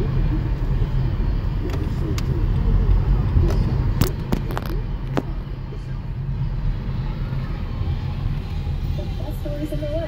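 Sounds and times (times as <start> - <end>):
car driving rumble inside cabin: 0.0 - 10.0.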